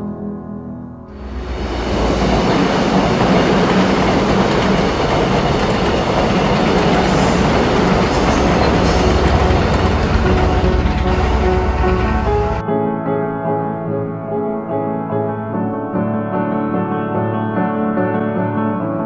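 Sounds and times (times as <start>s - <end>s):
train wheels rushing on rails: 1.1s - 12.6s.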